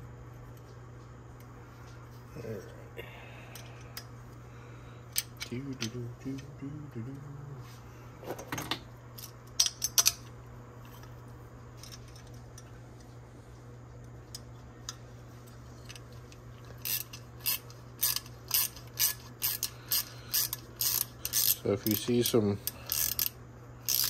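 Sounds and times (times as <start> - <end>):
steady low hum: 0.0 - 24.0
metal parts and tools clicking: 8.6 - 10.3, 16.8 - 24.0.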